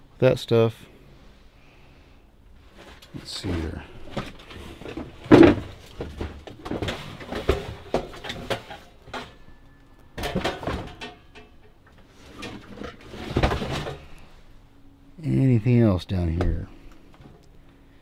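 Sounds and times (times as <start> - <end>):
scraping and clunks: 2.6 - 14.4
rummaging through junk: 2.7 - 14.3.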